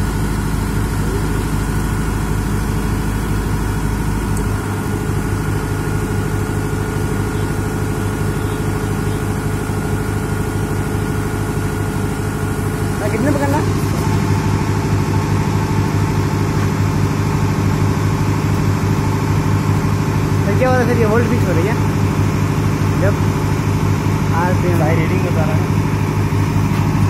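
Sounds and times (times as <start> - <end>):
diesel generator running: 0.0 - 27.0.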